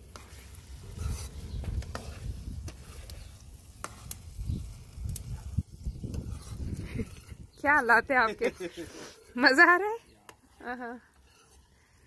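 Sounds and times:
metal spatula scraping pan: 0.0 - 4.4, 5.9 - 9.8, 10.5 - 12.0
vegetables frying in a wok: 0.0 - 9.6.

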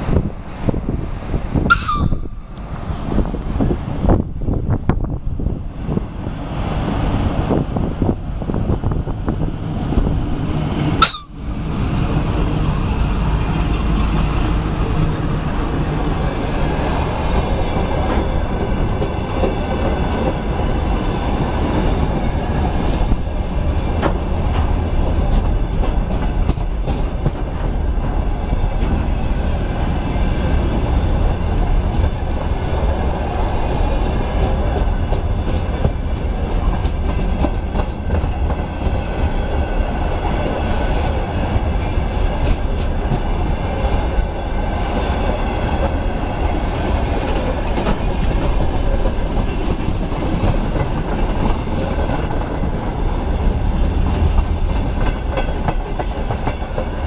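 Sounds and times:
electric locomotive passing: 0.0 - 57.0
freight wagons rumbling: 0.0 - 57.0
wheel clatter over rail joints: 30.7 - 57.0.

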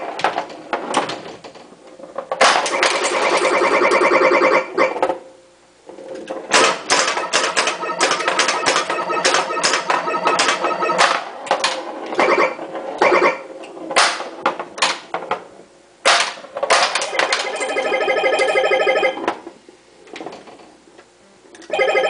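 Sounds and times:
pinball ball and flippers clacking: 0.1 - 5.3, 6.2 - 19.5
electronic beeping tones: 7.2 - 11.1, 12.2 - 13.4.

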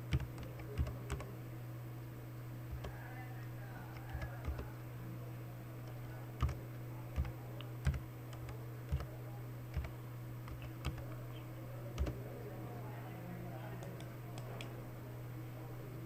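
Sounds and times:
keyboard keystrokes clicking: 0.0 - 1.3, 2.7 - 3.0, 5.9 - 9.1, 9.7 - 11.2, 12.0 - 12.2
steady low hum: 0.0 - 16.0.

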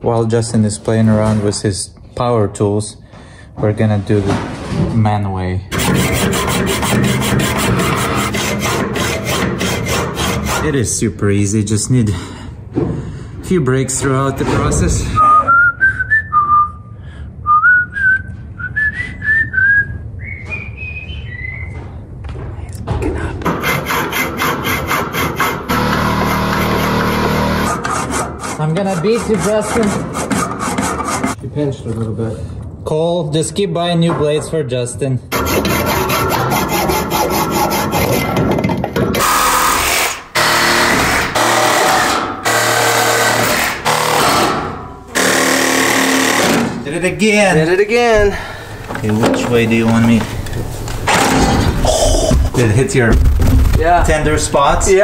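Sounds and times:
reciprocating saw cutting pipe: 5.7 - 10.8, 23.4 - 31.4, 35.3 - 38.4, 39.2 - 46.7
man whistling: 15.2 - 21.8.

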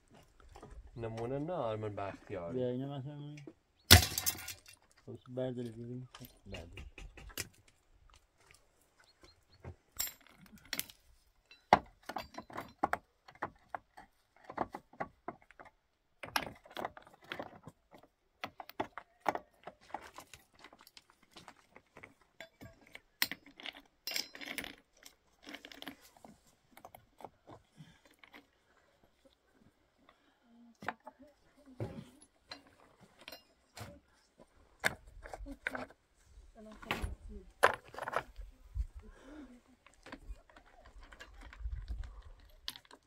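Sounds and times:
hard objects clinking: 18.5 - 26.2.

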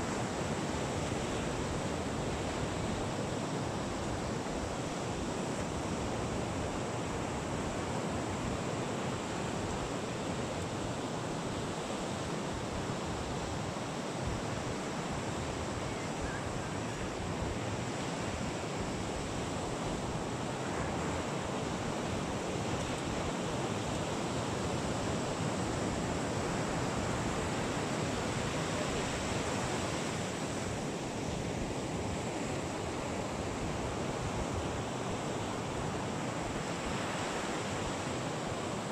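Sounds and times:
ocean surf rushing: 0.0 - 38.9.

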